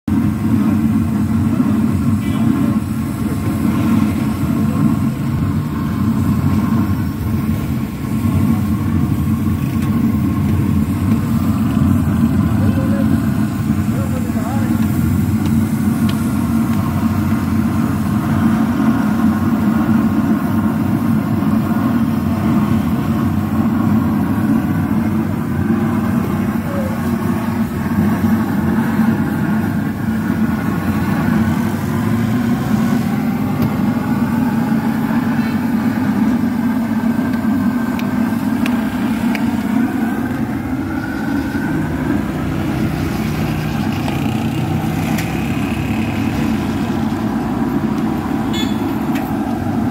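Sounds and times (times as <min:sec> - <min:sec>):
low mechanical drone: 0:00.1 - 0:49.9
faint voices talking: 0:24.9 - 0:28.2.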